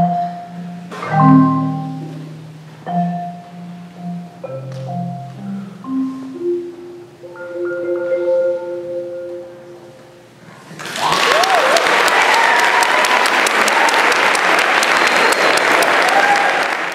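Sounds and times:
marimba chord: 0.0 - 10.4
audience applause: 10.7 - 16.9
cheering and whoops: 10.8 - 16.9.

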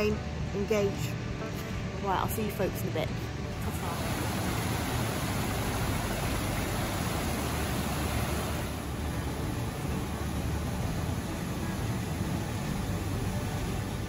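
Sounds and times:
stream rushing over rocks: 3.6 - 14.0.

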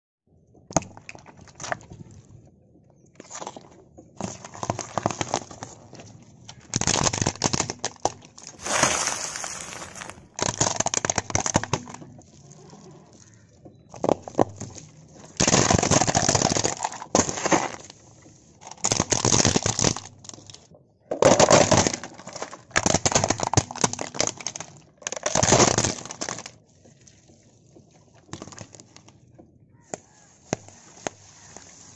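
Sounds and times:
objects crunching under car tyre: 8.6 - 10.5.

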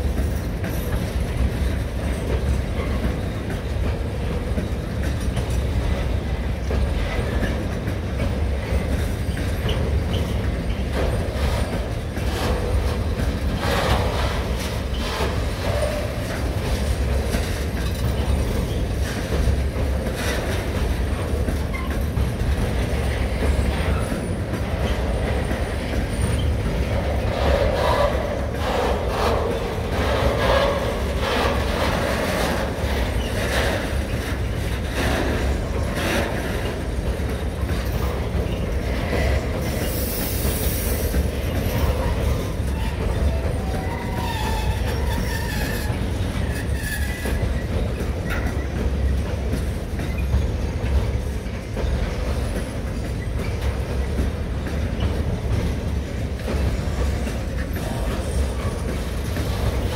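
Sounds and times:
train rumble: 0.0 - 59.9
wheels clicking over rail joints: 0.0 - 59.9
wheel squeal: 38.4 - 47.8.

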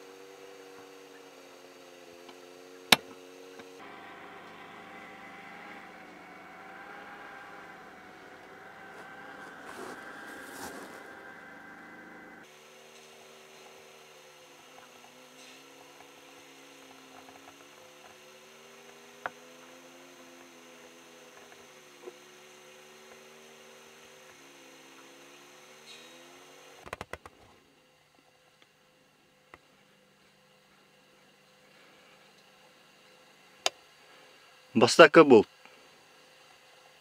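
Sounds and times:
engine running: 0.0 - 26.8.

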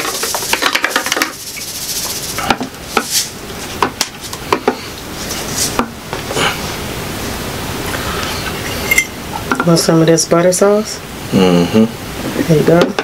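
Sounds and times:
salt shaker rattling: 0.0 - 4.4
metal utensils clinking on dishes: 8.8 - 9.7.

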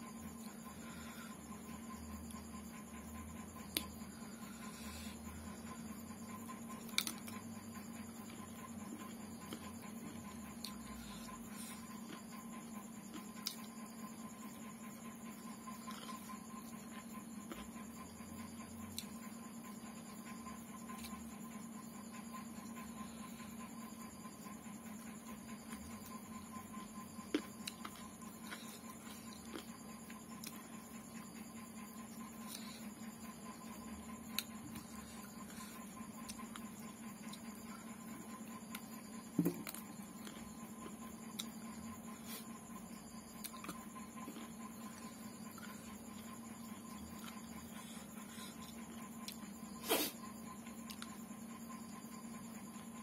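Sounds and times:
steady hum: 0.0 - 53.0
chewing: 13.1 - 13.7, 15.8 - 16.4, 27.2 - 30.6, 43.4 - 49.5.

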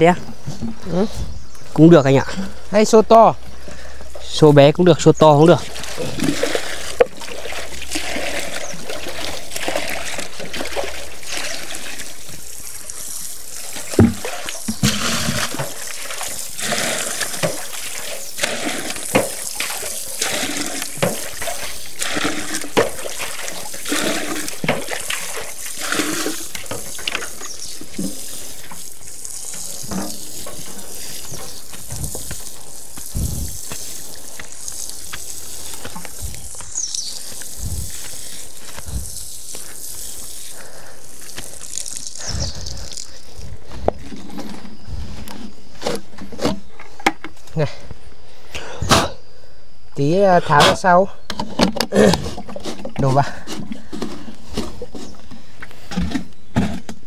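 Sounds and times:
water pouring and splashing: 5.0 - 45.2
buckets knocking: 5.6 - 43.2
dull thumps: 13.9 - 15.8.

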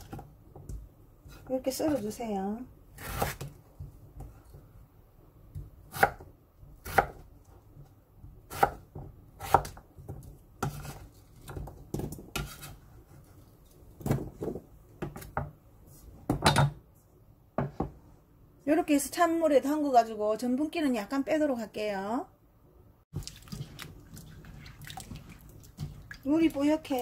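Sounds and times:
knife chopping on wooden board: 3.0 - 3.5, 5.6 - 7.2, 8.5 - 9.8.

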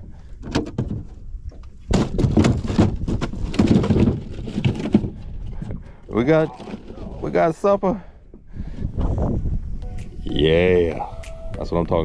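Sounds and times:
knocks and clatter on a boat: 0.4 - 7.2.

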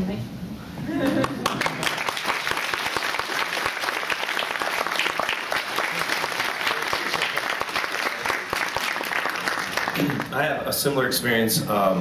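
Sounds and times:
audience applauding: 1.1 - 10.6.

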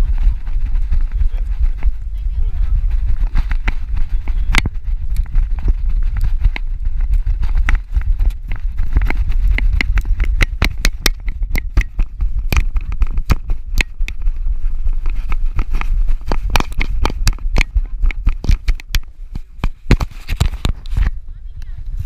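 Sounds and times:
low rumble: 0.0 - 19.9
camera handling clicks and scrapes: 15.0 - 21.2.

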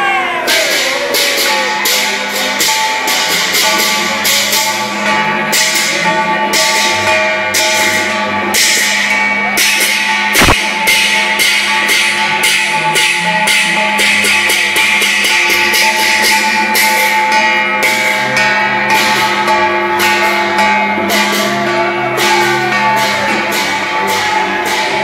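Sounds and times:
festive music: 0.0 - 25.0
cymbals crashing: 0.5 - 25.0
drum beats: 10.4 - 10.6.

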